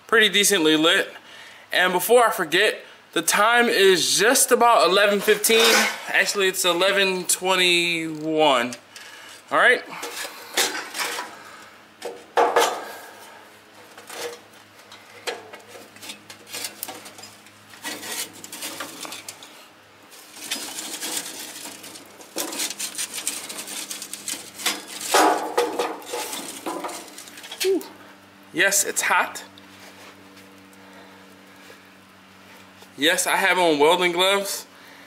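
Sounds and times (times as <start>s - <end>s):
metal chimney clanking and scraping: 4.2s - 9.2s, 9.9s - 27.8s
charcoal rattling onto grate: 9.9s - 11.4s, 13.9s - 27.9s.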